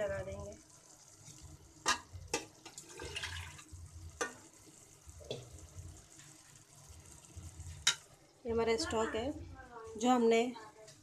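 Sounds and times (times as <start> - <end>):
faint frying sizzle: 0.0 - 11.0.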